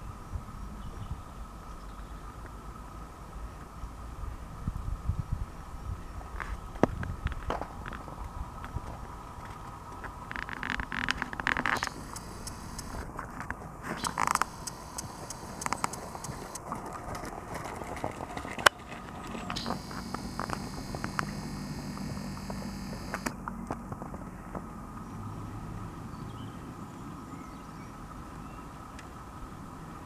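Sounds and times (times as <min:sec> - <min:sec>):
sharp click: 0:10.8 - 0:13.0, 0:14.0 - 0:16.6, 0:19.6 - 0:23.4
low steady hum: 0:11.8 - 0:13.1, 0:13.9 - 0:16.7, 0:19.5 - 0:23.4.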